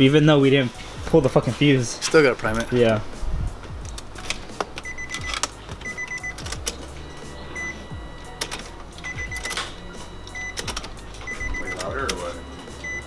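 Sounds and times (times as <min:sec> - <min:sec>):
key and switch clicks: 0:03.8 - 0:13.0
short high beeping chime: 0:11.2 - 0:13.0.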